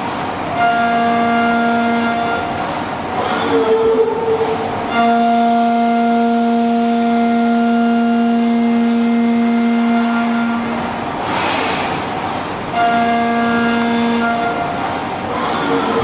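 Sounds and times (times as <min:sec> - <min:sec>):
rough hiss: 0:11.2 - 0:12.3.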